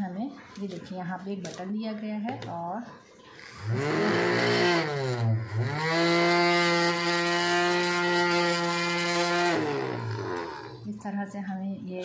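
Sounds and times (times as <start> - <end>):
knife sharpener motor whine: 3.4 - 10.9.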